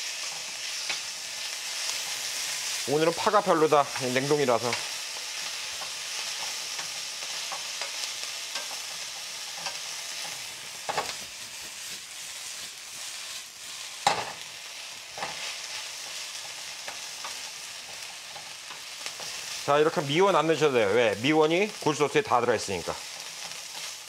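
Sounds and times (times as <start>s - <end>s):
rice sizzling in a frying pan: 0.0s - 24.0s
wooden spatula scraping a pan: 15.1s - 19.7s, 22.9s - 24.0s.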